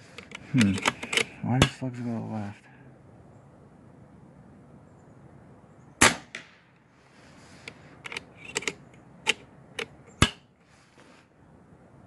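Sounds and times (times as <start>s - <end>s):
air rifle action clicking: 0.2s - 1.3s, 8.0s - 9.9s
air rifle shot crack: 6.0s - 6.7s.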